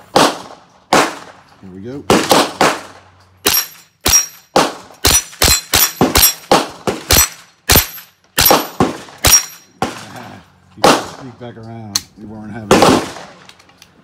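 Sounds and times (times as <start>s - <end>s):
rifle shots: 0.0s - 1.4s, 2.0s - 10.2s, 10.8s - 11.4s, 12.6s - 13.5s.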